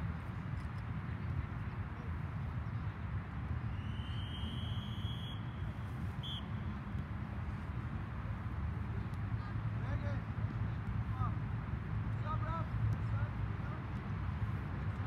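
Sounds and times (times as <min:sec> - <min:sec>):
referee's whistle: 0:03.7 - 0:06.7.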